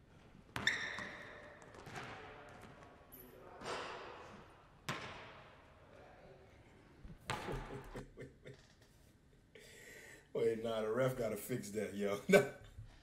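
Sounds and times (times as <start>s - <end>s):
basketball bouncing: 0.5s - 2.9s, 4.8s - 5.4s, 7.2s - 7.8s
shoe squeak on hardwood: 0.6s - 1.4s.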